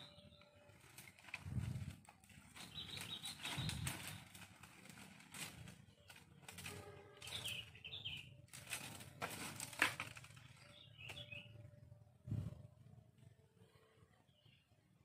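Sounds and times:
bird chirps: 0.0s - 1.0s, 2.6s - 4.4s, 5.9s - 8.4s, 10.4s - 12.6s
dry leaves and twigs crackling: 0.0s - 12.7s.

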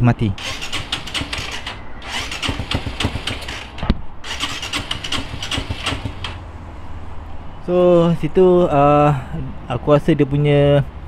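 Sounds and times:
motorcycle engine cranking: 0.4s - 6.5s.

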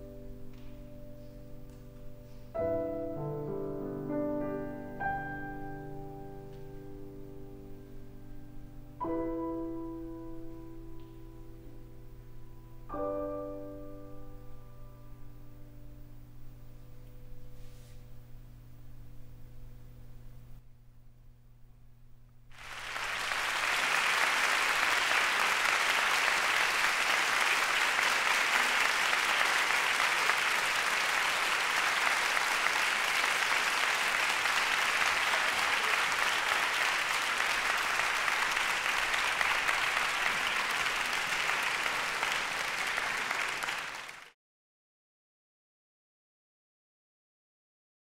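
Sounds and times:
audience applause: 22.6s - 44.4s.

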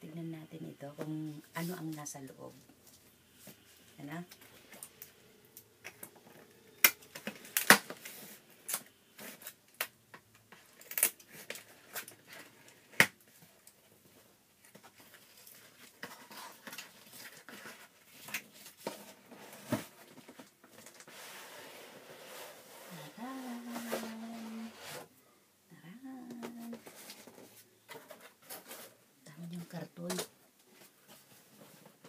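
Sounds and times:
packing tape tearing: 6.8s - 9.9s, 10.7s - 13.2s.

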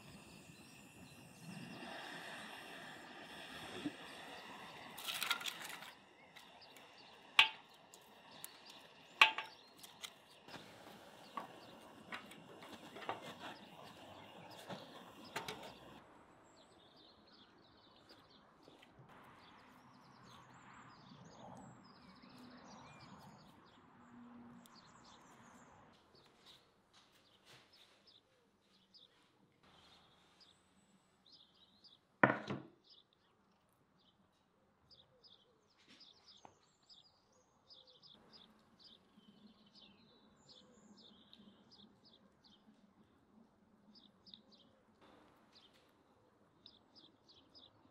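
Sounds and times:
birds chirping: 0.0s - 16.0s.

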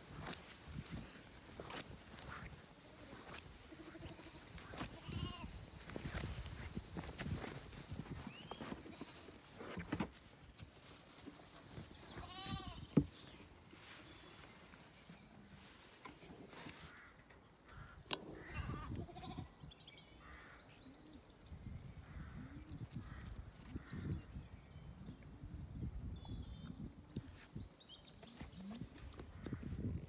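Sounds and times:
lamb bleating: 3.7s - 5.5s, 12.2s - 12.8s, 18.4s - 19.6s.

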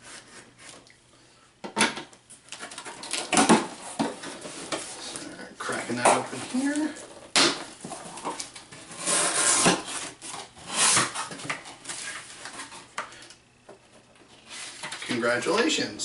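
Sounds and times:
cardboard flaps scraping: 2.6s - 12.9s.

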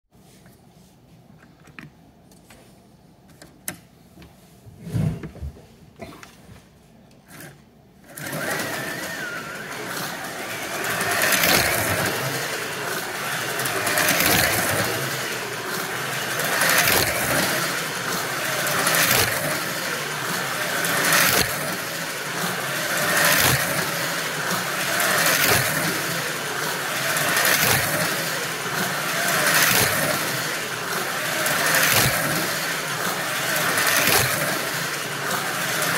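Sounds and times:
slot car motor whining: 7.3s - 35.9s.

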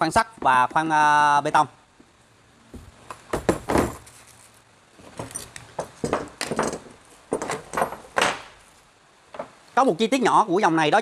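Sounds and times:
tools knocking and clattering: 3.2s - 4.0s, 5.0s - 8.5s.

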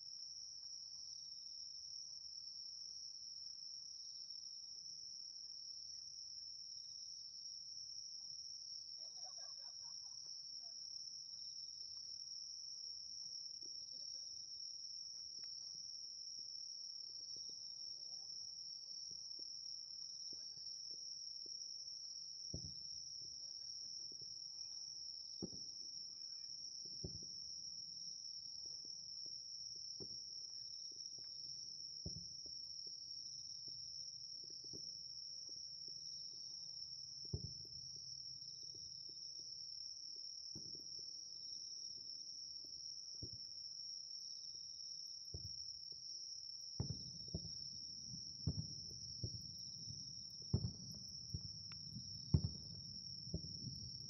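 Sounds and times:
insects trilling: 8.8s - 15.9s, 22.5s - 29.1s, 40.4s - 54.0s
distant fireworks booms: 46.8s - 54.0s.

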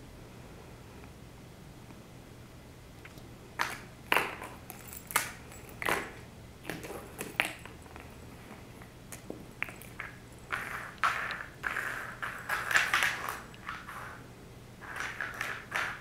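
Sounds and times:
plastic egg clacking on wood floor: 9.2s - 14.2s, 14.8s - 16.0s.

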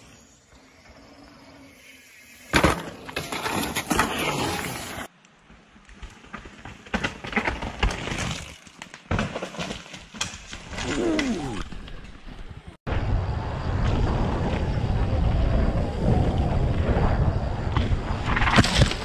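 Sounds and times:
bike rattling on rough ground: 2.5s - 12.8s.

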